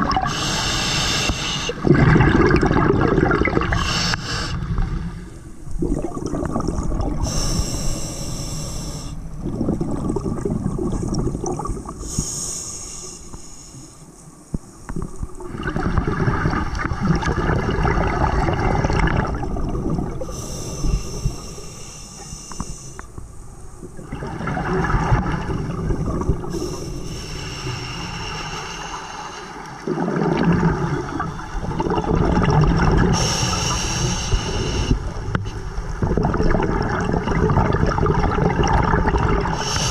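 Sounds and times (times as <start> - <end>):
exhaled bubbles rushing: 0.0 - 0.4, 1.7 - 4.0, 4.6 - 7.4, 9.3 - 12.0, 15.0 - 20.3, 23.8 - 26.6, 29.8 - 33.3, 35.0 - 39.7
diver breathing through regulator: 0.2 - 1.8, 3.7 - 5.5, 7.0 - 9.3, 12.0 - 14.2, 20.2 - 23.2, 26.5 - 29.8, 33.1 - 35.2, 39.6 - 39.9.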